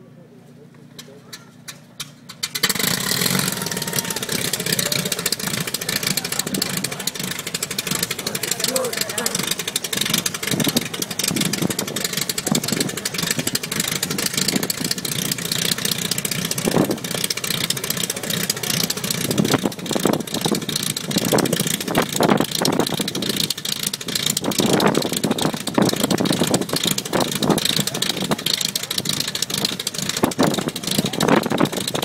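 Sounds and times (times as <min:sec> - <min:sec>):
biplane engine idling: 0:00.0 - 0:32.0.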